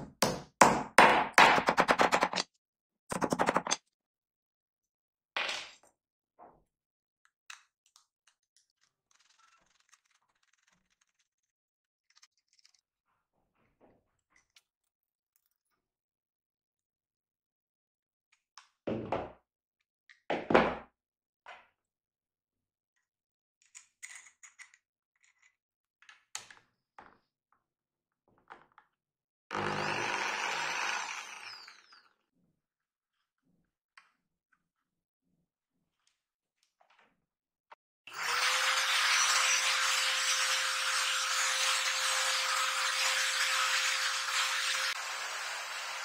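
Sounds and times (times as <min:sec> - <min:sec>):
electric drill whining: 0:29.5 - 0:32.1, 0:38.1 - 0:46.0.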